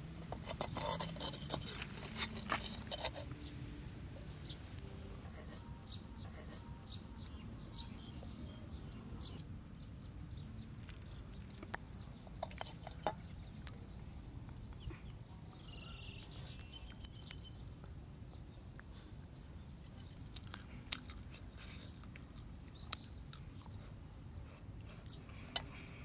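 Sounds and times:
chewing: 0.3 - 3.4, 10.3 - 15.7, 19.8 - 24.0
bird chirps: 5.5 - 17.7.

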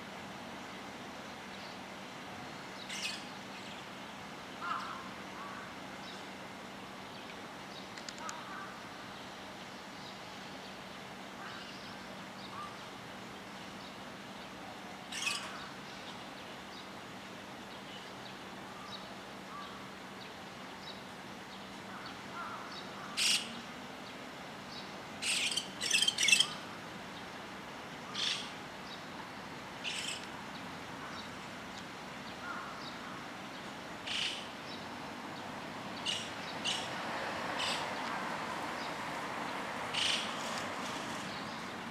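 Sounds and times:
starlings calling: 2.8 - 3.9, 15.1 - 16.2, 21.9 - 23.6, 24.7 - 26.7, 28.0 - 29.1, 29.8 - 31.4, 32.2 - 34.9, 35.9 - 39.0, 39.9 - 41.9.

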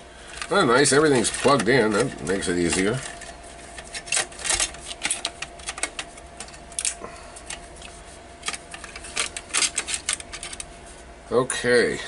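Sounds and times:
circuit board clicking and rattling: 1.2 - 7.6, 8.4 - 10.7.

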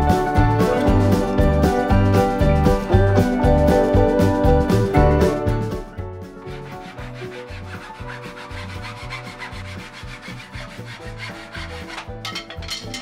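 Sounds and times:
background music: 0.0 - 13.0
hand saw cutting wood: 6.4 - 13.0.

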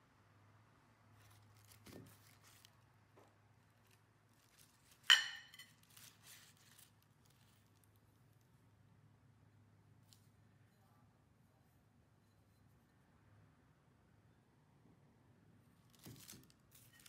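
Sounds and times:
packing paper rustling: 1.2 - 2.8, 3.7 - 8.0, 15.8 - 17.0
ceramic bowl clinking: 5.0 - 5.8.

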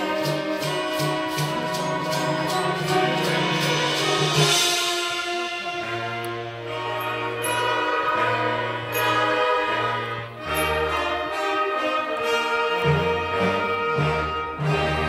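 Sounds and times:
wind band playing: 0.0 - 15.0.

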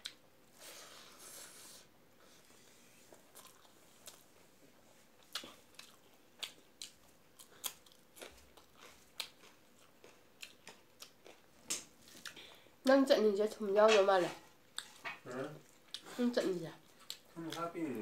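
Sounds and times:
person chewing: 0.0 - 4.3, 5.2 - 12.7, 14.6 - 16.2, 16.8 - 17.7.

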